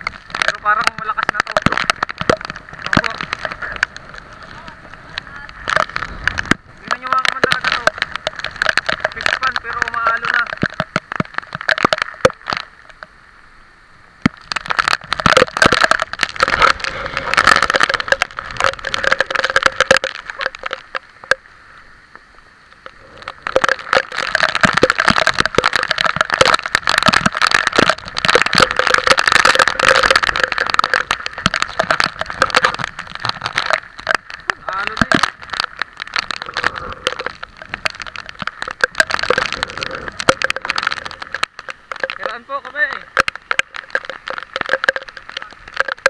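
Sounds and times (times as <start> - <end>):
heavy rain: 0.0 - 46.0
wind on microphone: 0.9 - 11.0.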